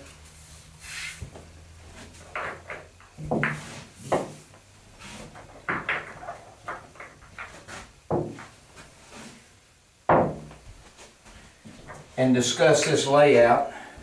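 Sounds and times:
billiard balls knocking and rolling: 0:01.3 - 0:09.0, 0:10.1 - 0:10.7.

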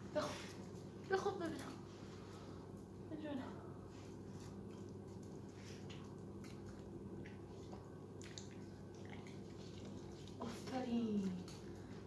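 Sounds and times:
steady low hum: 0:00.0 - 0:12.0
dog licking and chewing: 0:04.2 - 0:12.0.

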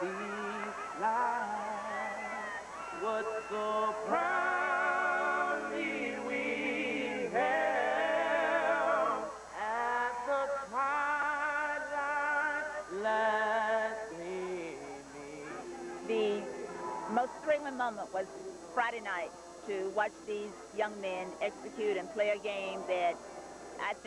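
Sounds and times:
men singing in harmony: 0:00.0 - 0:17.2.

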